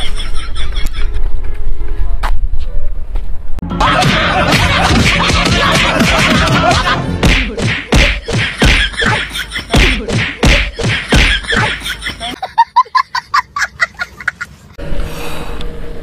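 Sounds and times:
thumping music beat: 3.6 - 12.4
sticks whacking and thudding: 4.0 - 8.9, 9.7 - 11.7.

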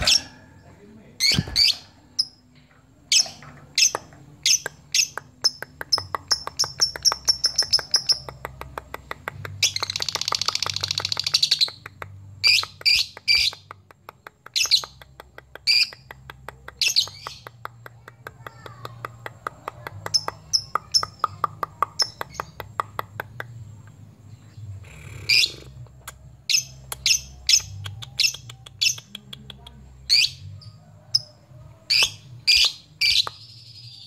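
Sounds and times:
lovebird chattering trill: 3.1 - 8.4
lovebird chirping: 3.1 - 13.7, 23.7 - 31.3, 31.9 - 34.0.

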